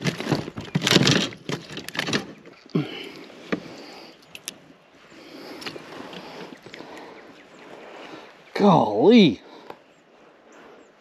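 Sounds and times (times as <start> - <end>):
knocks and scrapes on plastic deck: 0.0 - 2.5.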